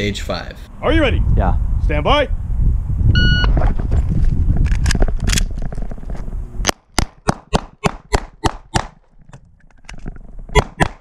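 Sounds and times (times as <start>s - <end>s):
steady rumble: 0.8s - 6.9s
pistol shots: 6.7s - 9.0s, 10.6s - 11.0s.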